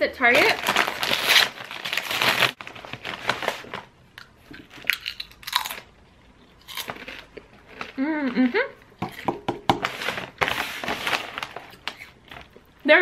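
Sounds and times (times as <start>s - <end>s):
foil chip bag rustling: 0.2s - 3.9s, 9.8s - 12.6s
chips crunching and chewing: 4.2s - 9.4s.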